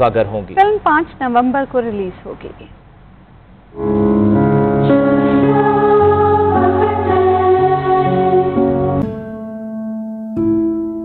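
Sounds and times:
choir singing sustained chords: 3.8 - 11.0.

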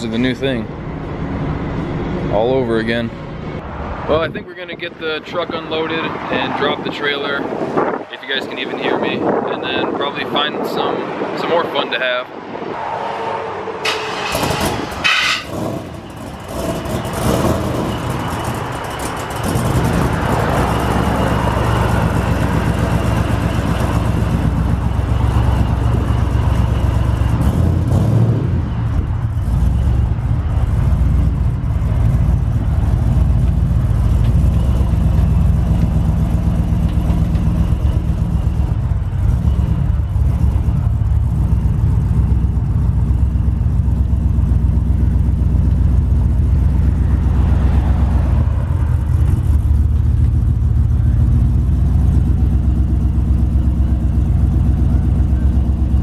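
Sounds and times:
truck engine idling: 15.0 - 27.9, 28.6 - 56.0.

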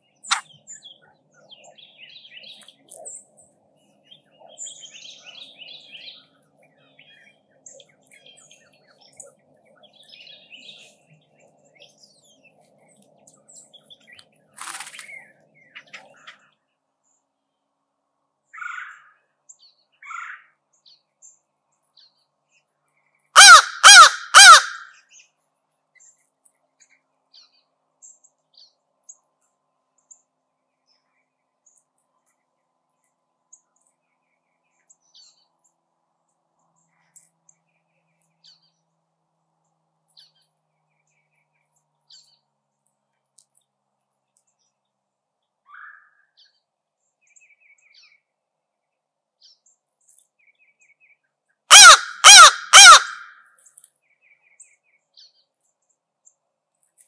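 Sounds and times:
small bird chirps: 0.1 - 6.3
crow cawing: 23.4 - 25.0, 51.7 - 53.4.

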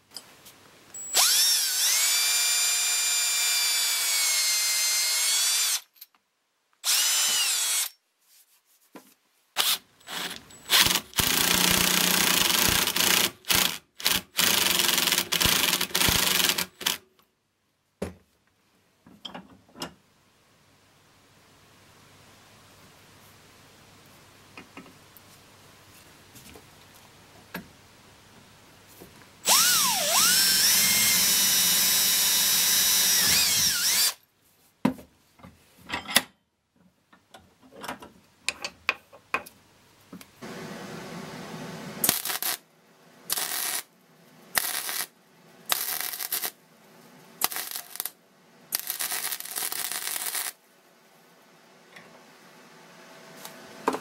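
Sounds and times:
cordless drill boring wood: 1.1 - 5.9, 6.8 - 7.9, 9.6 - 17.0, 29.4 - 34.2
arc welding bursts: 9.6 - 17.0, 29.5 - 34.2, 42.0 - 42.6, 43.3 - 43.9, 44.6 - 45.1, 45.7 - 46.6, 47.4 - 50.6.

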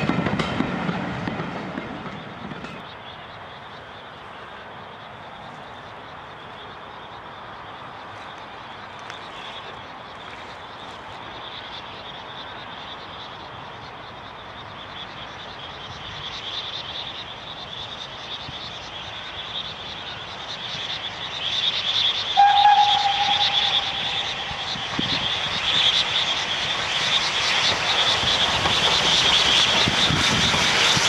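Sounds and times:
steam locomotive exhaust beats: 22.2 - 31.0
steam whistle blast: 22.4 - 25.3.

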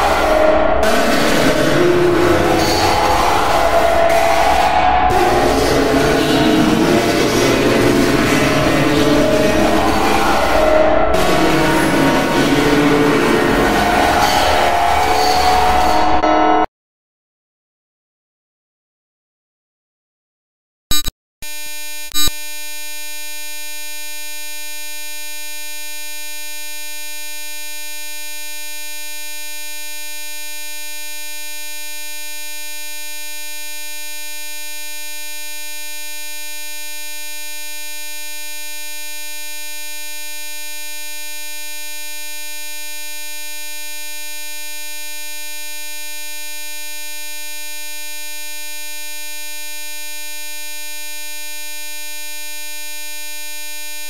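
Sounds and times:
brief electronic blip: 20.9 - 22.4
steady electronic buzzing tone: 20.9 - 54.0.

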